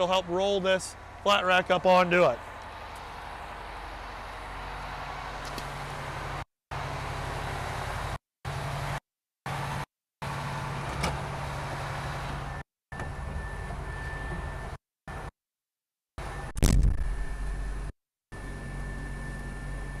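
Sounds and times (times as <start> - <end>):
truck diesel engine running: 0.0 - 12.6.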